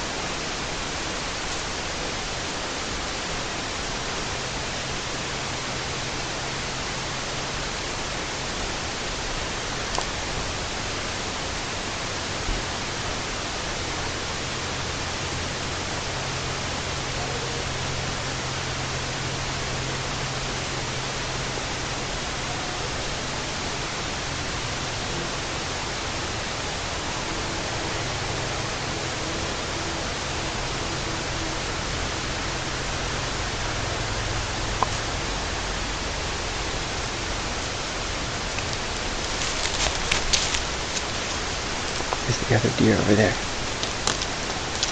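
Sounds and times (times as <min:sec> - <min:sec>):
faint low hum: 0:00.0 - 0:44.9
steady hiss: 0:00.0 - 0:44.9
small clicks: 0:43.8 - 0:44.9.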